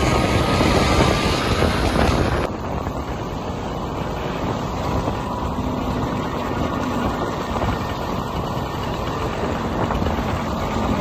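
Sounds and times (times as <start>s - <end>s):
road and wind rumble: 0.0s - 11.0s
motor scooter engine running: 3.2s - 11.0s.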